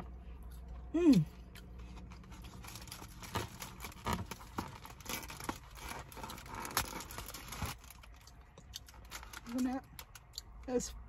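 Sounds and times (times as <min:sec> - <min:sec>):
aluminium foil crinkling: 0:01.9 - 0:10.4.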